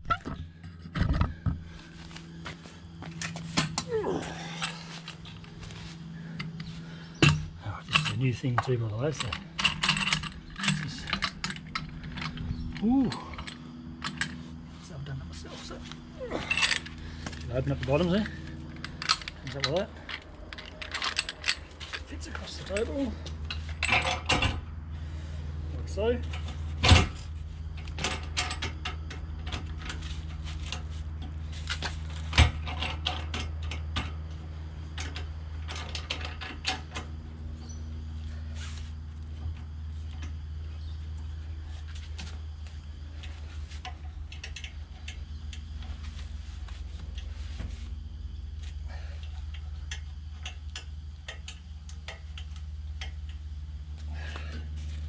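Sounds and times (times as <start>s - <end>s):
steady low hum: 0.0s - 55.0s
metal clicks and knocks: 6.4s - 14.4s, 49.5s - 53.4s.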